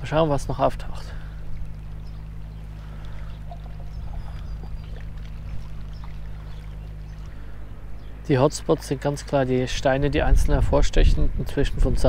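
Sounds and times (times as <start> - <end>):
low rumble: 0.0 - 12.0
water lapping at shoreline: 0.1 - 10.0
faint splashes and ticks: 1.1 - 7.5.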